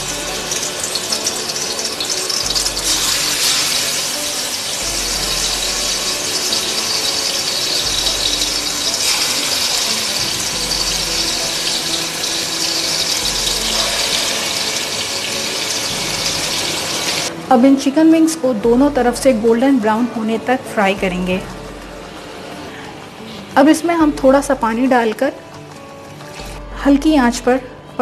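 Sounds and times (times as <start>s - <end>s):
chicken wings sizzling in hot oil: 0.0s - 17.3s.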